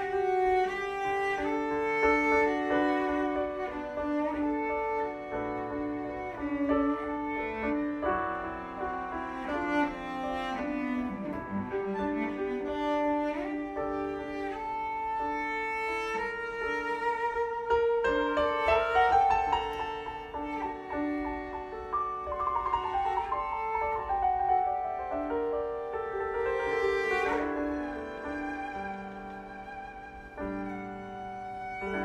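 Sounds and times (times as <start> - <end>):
cello bowing melody: 0.0 - 32.0.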